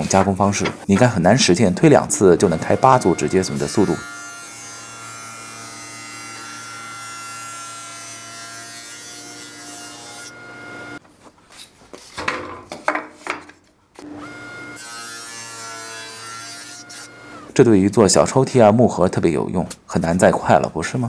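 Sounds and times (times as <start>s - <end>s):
cutters cutting wooden board: 2.0s - 11.0s, 14.0s - 17.5s.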